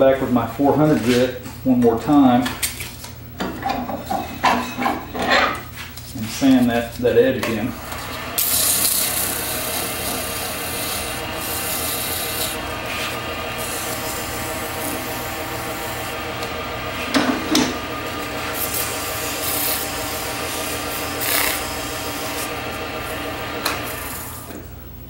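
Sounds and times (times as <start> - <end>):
lathe motor humming: 6.8 - 24.8
sanding scrape: 8.0 - 17.2, 18.1 - 24.4
sandpaper rubbing hiss: 8.4 - 15.1, 18.4 - 22.5.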